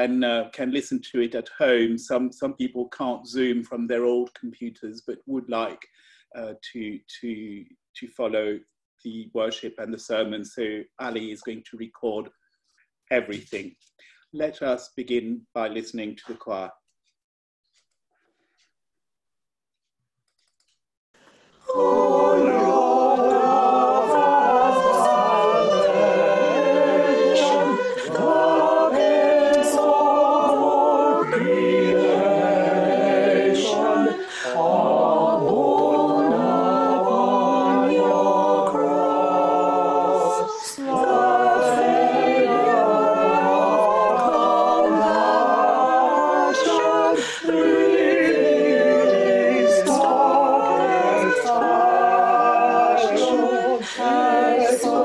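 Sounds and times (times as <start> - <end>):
choir singing a cappella: 0.0 - 0.4, 21.3 - 55.0.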